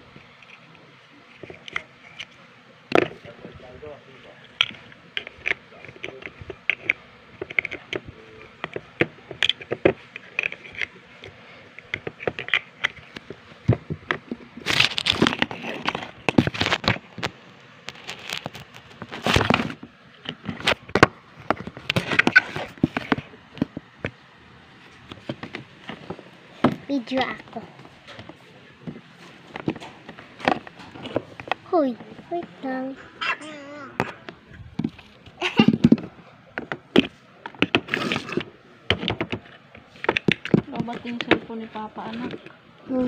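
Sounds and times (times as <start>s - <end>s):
phone handling noise: 24.9s - 32.5s.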